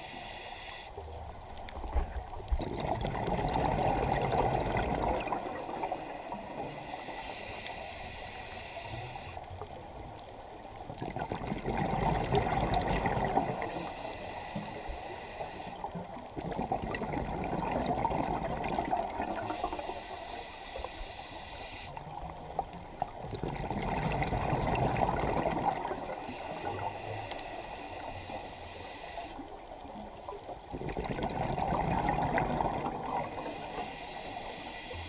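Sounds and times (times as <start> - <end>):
regulator hiss: 0.0 - 1.0, 5.8 - 9.4, 13.8 - 15.9, 19.5 - 22.0, 26.2 - 29.6, 33.3 - 35.0
exhaled bubbles gurgling: 1.8 - 7.3, 9.6 - 14.8, 15.7 - 20.1, 21.9 - 28.5, 29.4 - 34.5.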